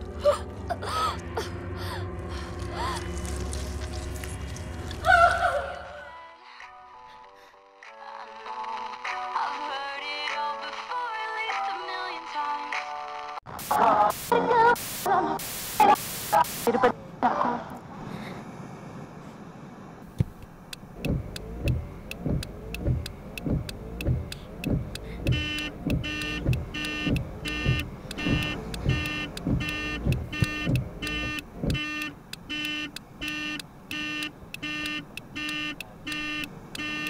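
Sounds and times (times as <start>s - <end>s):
car horn pulsing: 20.2s - 37.0s
heavy low thumps: 21.0s - 31.8s.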